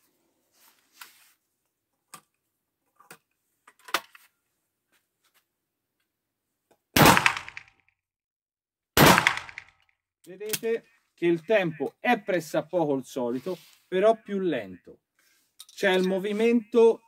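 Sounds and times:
shotgun firing indoors: 0:07.0 - 0:07.7, 0:09.0 - 0:09.7.

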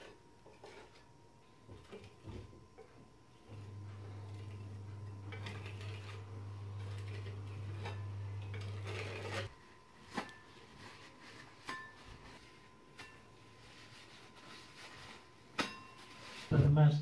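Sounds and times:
steady low hum: 0:00.0 - 0:11.0
paper towels rustling: 0:03.6 - 0:17.0
metal spatula scraping a wall: 0:04.0 - 0:09.5.

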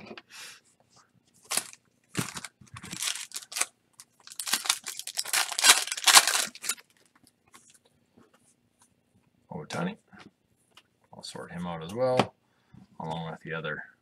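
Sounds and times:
foil pack crinkling and tearing: 0:01.5 - 0:06.8.

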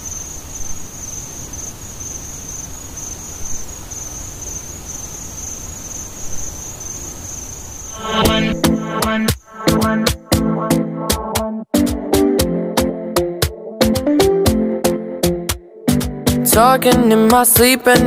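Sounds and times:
crickets chirping: 0:00.0 - 0:09.9
music with a beat: 0:08.0 - 0:18.0.

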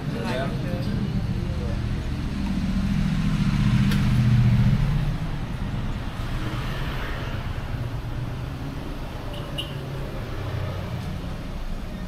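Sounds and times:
vehicle engine passing by: 0:01.0 - 0:11.8.

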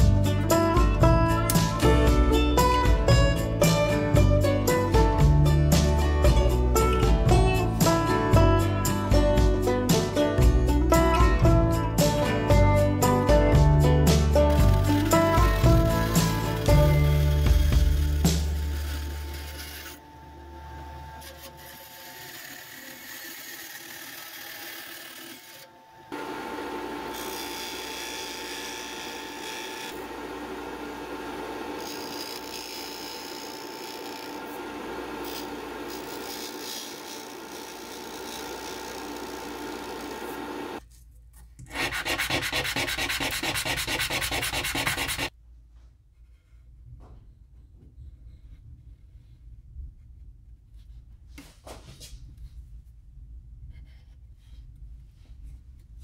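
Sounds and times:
band saw cutting plastic sheet: 0:14.1 - 0:40.8, 0:41.6 - 0:45.3
disc sander rasping: 0:14.1 - 0:40.8, 0:41.7 - 0:45.3.

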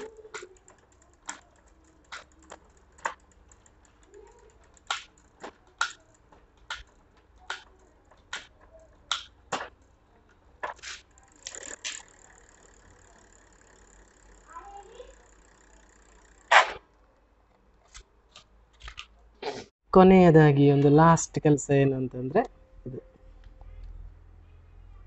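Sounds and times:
bicycle chain clicking: 0:00.0 - 0:17.1.

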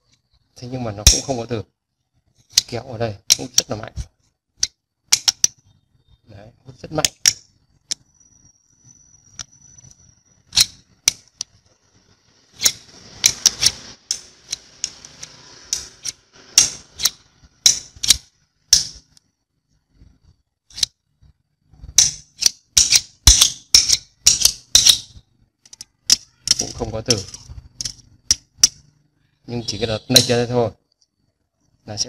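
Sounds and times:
metal scraping along magnet: 0:08.8 - 0:19.2, 0:20.7 - 0:21.0, 0:21.7 - 0:28.9
screwdriver clicking on magnet: 0:12.6 - 0:19.2.

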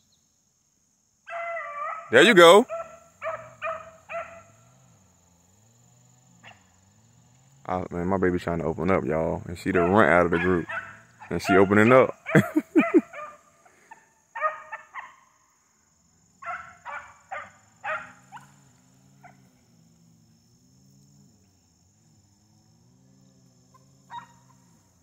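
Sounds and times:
high insect drone: 0:00.0 - 0:25.0
puppies baying: 0:01.3 - 0:04.8, 0:09.6 - 0:15.2, 0:16.4 - 0:19.6, 0:23.7 - 0:24.6.

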